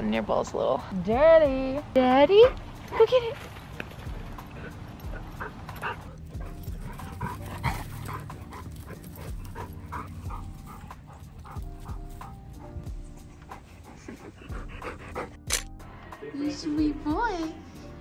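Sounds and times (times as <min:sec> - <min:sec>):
soft background music: 0:00.0 - 0:18.0
dogs panting: 0:02.2 - 0:15.5.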